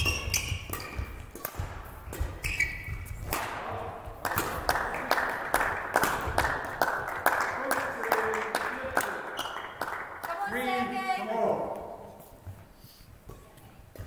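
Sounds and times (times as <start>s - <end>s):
shoe squeaks on court floor: 0.0s - 1.2s, 2.3s - 3.2s
racket hitting shuttlecock: 0.0s - 5.0s, 5.6s - 6.8s
people clapping: 4.2s - 11.0s.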